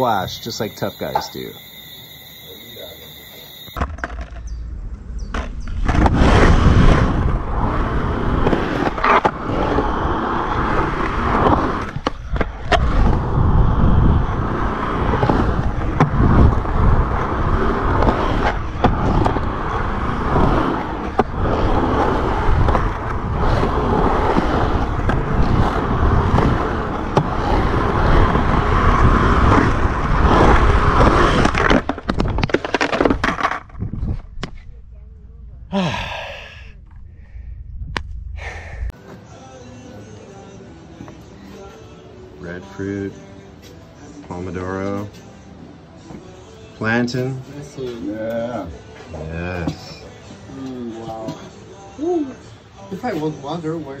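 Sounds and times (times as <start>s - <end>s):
skateboard wheels rumbling on concrete: 3.0s - 34.9s.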